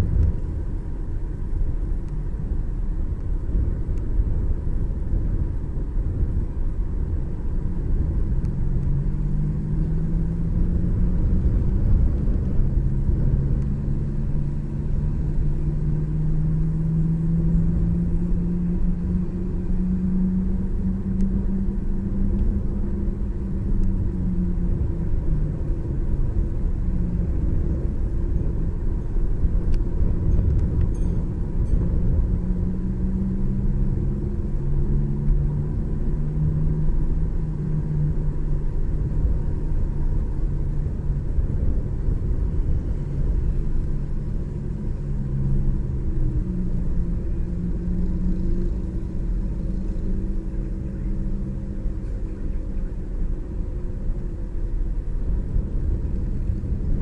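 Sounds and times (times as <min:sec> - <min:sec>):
low road rumble: 0:00.0 - 0:57.0
vehicle engine running: 0:00.0 - 0:57.0.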